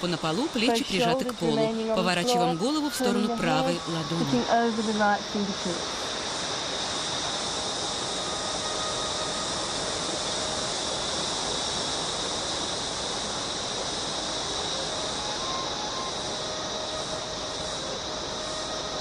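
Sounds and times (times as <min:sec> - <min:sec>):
constant high-pitched tone: 0:00.0 - 0:19.0
even outdoor hiss: 0:00.0 - 0:19.0.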